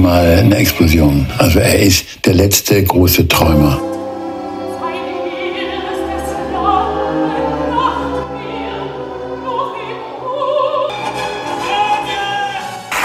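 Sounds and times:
orchestra playing: 0.0 - 2.0, 3.3 - 13.0
opera singer with wide vibrato: 4.7 - 13.0.

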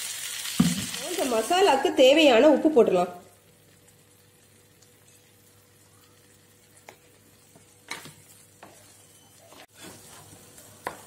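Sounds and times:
faint sizzling: 0.0 - 11.0
wooden spatula scraping a pan: 8.6 - 10.6.

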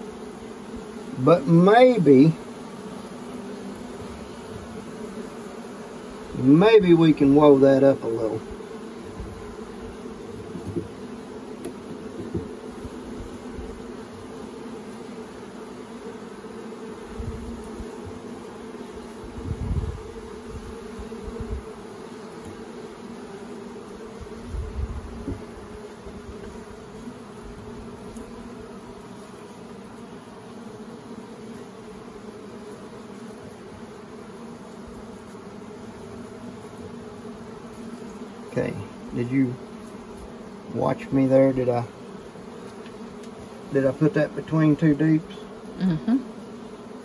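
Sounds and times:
bees buzzing: 0.0 - 47.0.

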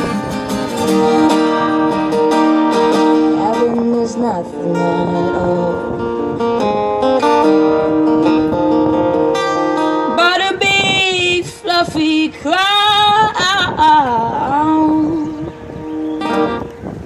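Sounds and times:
acoustic guitar strumming: 0.0 - 17.0
woman singing: 3.1 - 6.1, 10.1 - 15.5.

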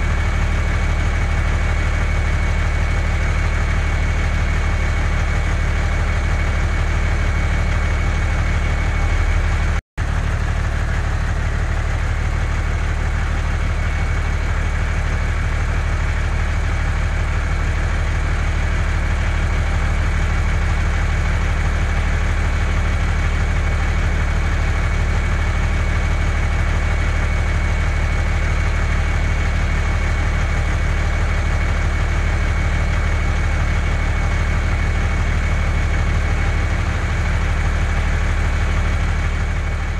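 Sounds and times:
truck engine idling: 0.0 - 39.9.

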